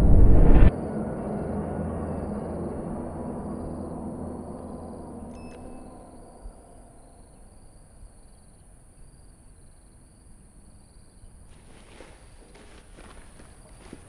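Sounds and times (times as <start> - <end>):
steady high whine: 0.0 - 8.4
faint low rumble: 0.0 - 9.2
crickets chirping: 0.7 - 14.0
footsteps: 11.5 - 14.0.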